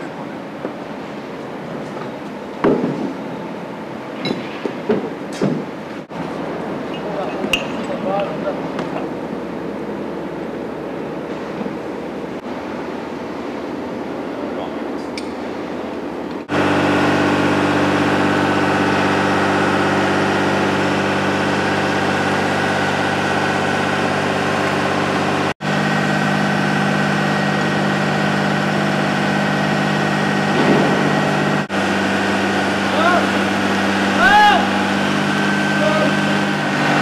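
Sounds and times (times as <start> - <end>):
heavy lorry engine idling: 8.1 - 37.0.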